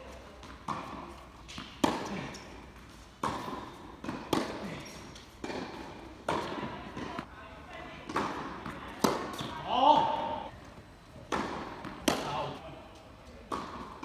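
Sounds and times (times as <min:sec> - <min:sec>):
tennis ball bouncing on court: 0:00.3 - 0:07.3, 0:08.0 - 0:09.6, 0:11.2 - 0:12.5, 0:13.4 - 0:14.0
racquets striking tennis ball: 0:00.4 - 0:07.3, 0:08.0 - 0:10.2, 0:11.2 - 0:12.6, 0:13.4 - 0:14.0.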